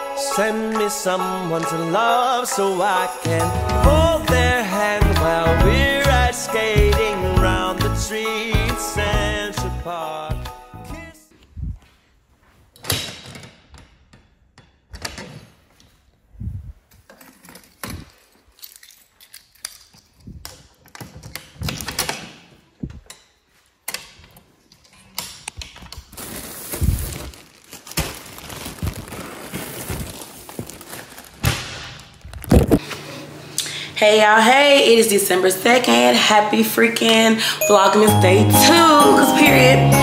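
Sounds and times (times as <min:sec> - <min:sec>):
plastic packages rustling: 0:25.8 - 0:32.8.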